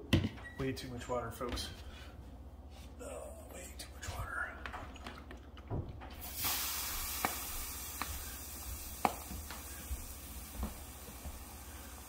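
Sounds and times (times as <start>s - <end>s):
steam iron hissing: 6.2s - 12.0s.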